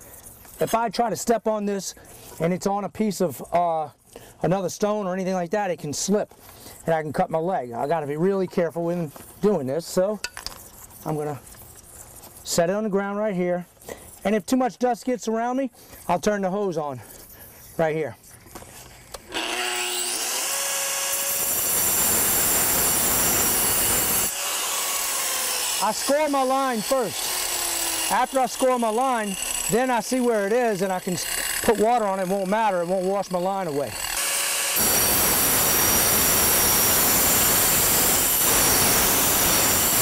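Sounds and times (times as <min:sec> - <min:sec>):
angle grinder cutting stone: 0:19.2 - 0:40.0.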